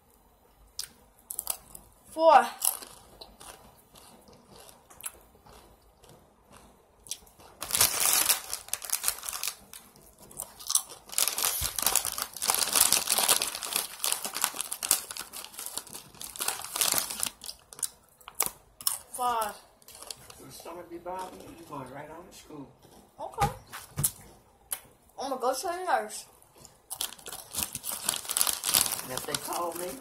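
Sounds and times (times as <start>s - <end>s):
chips crunching: 0.8s - 1.9s, 2.6s - 21.5s, 26.6s - 30.0s
plastic chip bag crinkling: 2.6s - 5.6s, 7.1s - 21.7s, 26.6s - 30.0s.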